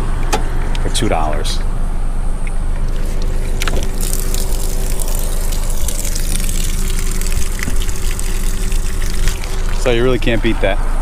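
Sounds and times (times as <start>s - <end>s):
vending machine humming: 0.0s - 11.0s
ice pouring out clattering: 3.0s - 10.0s.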